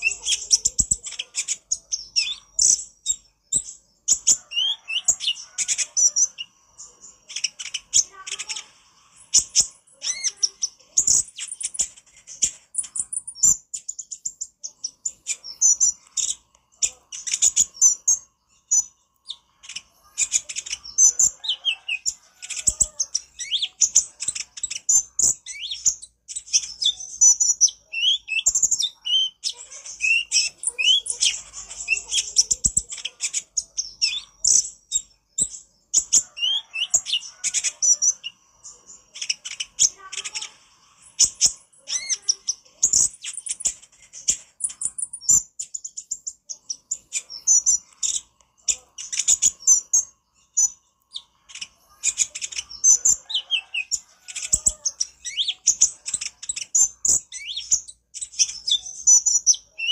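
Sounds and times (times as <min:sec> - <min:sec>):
sunbird singing: 0:00.0 - 0:11.9, 0:44.6 - 0:59.9.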